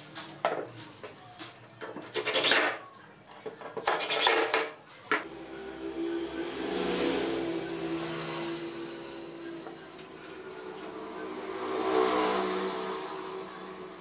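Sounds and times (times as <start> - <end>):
steady hum: 5.2 - 11.7.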